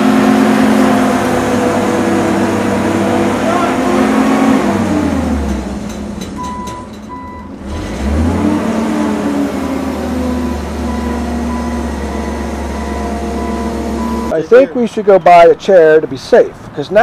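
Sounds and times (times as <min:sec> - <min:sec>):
heavy truck engine running: 0:00.0 - 0:14.4
reversing alarm beeping: 0:06.4 - 0:07.6, 0:10.8 - 0:14.4.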